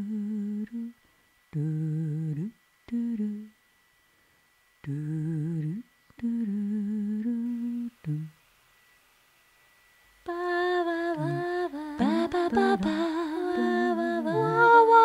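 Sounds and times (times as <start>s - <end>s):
person humming: 0.0s - 3.6s, 4.8s - 8.4s, 10.3s - 15.0s.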